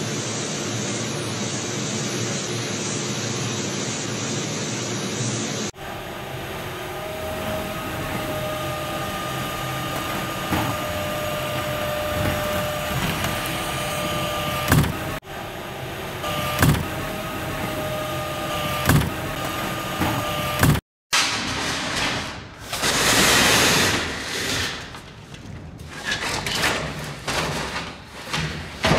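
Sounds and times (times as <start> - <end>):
machinery hum with faint whine: 0.0 - 20.8.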